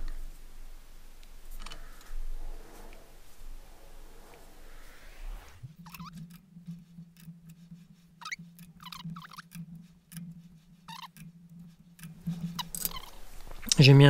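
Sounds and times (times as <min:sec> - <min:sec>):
steady low hum: 0:00.0 - 0:14.0
short high squeaks: 0:04.8 - 0:06.4, 0:08.2 - 0:09.7, 0:10.9 - 0:11.3, 0:12.3 - 0:13.3.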